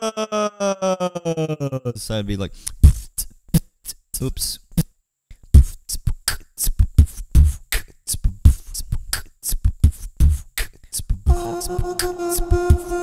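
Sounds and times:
looped beatboxing: 0:02.7 - 0:04.9, 0:05.5 - 0:13.0
held chord of steady tones: 0:11.3 - 0:13.0.

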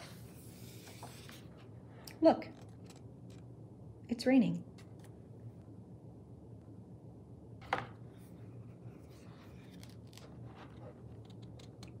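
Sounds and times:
paper rustling and ticks: 0:09.6 - 0:12.0.

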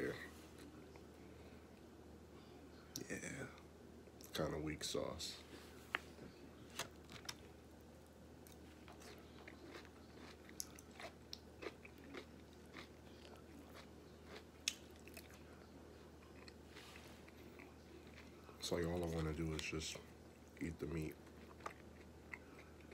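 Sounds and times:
chewing food: 0:08.4 - 0:22.9.

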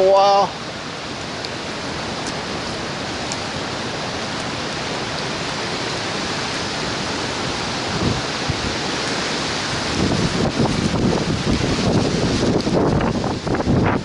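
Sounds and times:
hurricane wind and driving rain: 0:00.0 - 0:14.0
wind buffeting microphone: 0:00.8 - 0:14.0.

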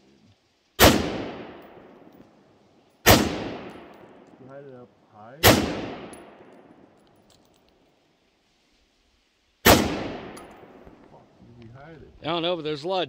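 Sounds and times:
rifle shots echoing: 0:00.8 - 0:02.4, 0:03.0 - 0:04.4, 0:05.4 - 0:07.0, 0:09.6 - 0:11.1.

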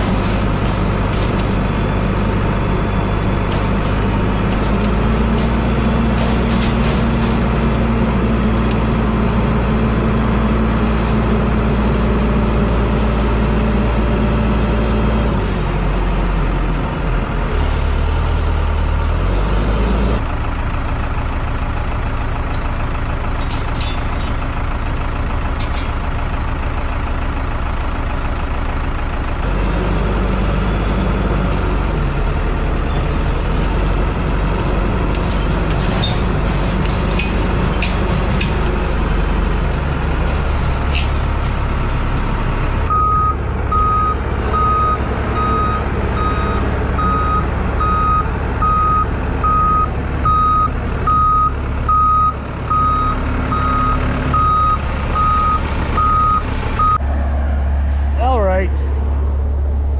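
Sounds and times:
telehandler engine running: 0:00.0 - 0:59.9
reverse alarm beeping: 0:42.9 - 0:57.0.

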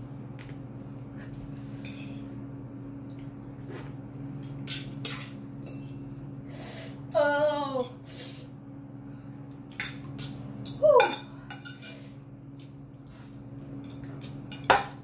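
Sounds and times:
steady low hum: 0:00.0 - 0:15.0
slurping eating sounds: 0:03.6 - 0:04.1.

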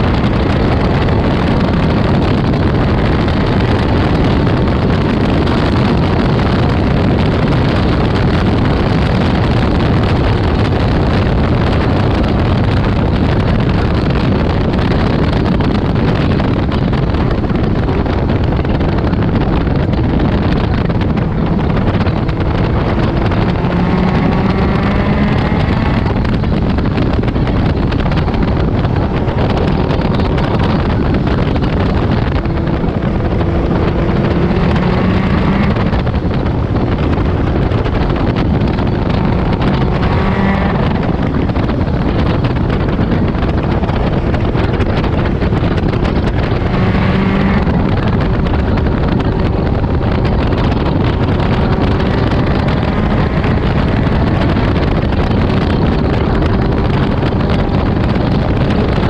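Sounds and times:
car engine revving: 0:00.0 - 0:59.0
wind buffeting on microphone: 0:00.0 - 0:59.0.

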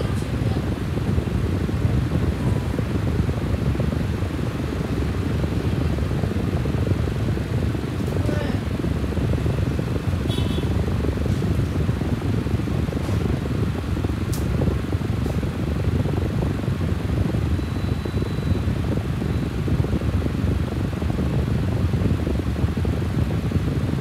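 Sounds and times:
steady low rushing noise: 0:00.0 - 0:17.6.

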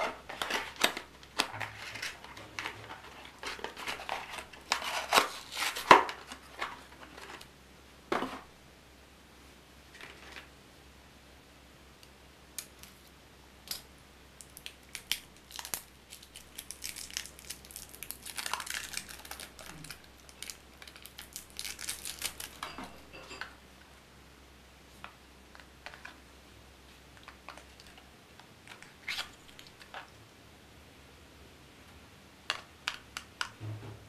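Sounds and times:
plastic wrapping crinkling and tearing: 0:00.0 - 0:07.5, 0:14.5 - 0:22.6.

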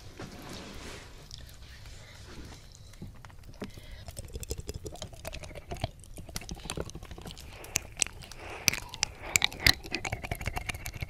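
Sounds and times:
soft hissing: 0:00.0 - 0:11.0
wet mouth smacking and clicking: 0:02.8 - 0:11.0.

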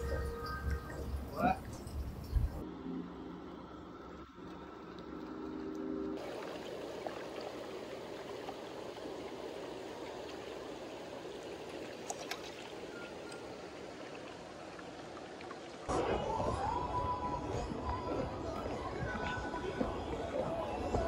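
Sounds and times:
water pouring from a spout: 0:04.2 - 0:15.9.

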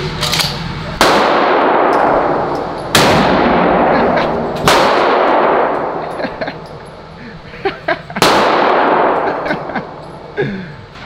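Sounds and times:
shotgun blasts echoing: 0:01.0 - 0:06.0, 0:08.2 - 0:09.4.

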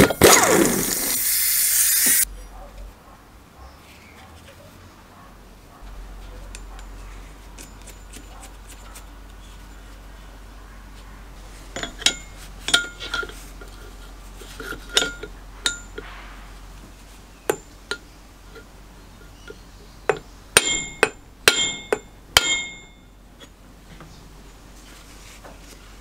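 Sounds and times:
metal tools clinking on engine: 0:11.8 - 0:13.8, 0:14.6 - 0:16.1, 0:17.5 - 0:23.6.

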